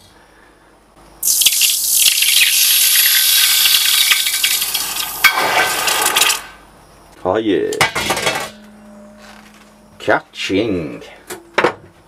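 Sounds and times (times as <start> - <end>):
hot metal sizzling in water: 1.2 - 6.5.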